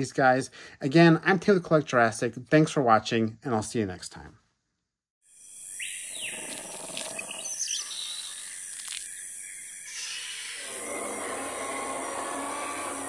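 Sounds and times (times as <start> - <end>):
insect-like drone: 5.3 - 13.0
bird chirps and calls: 5.8 - 10.6.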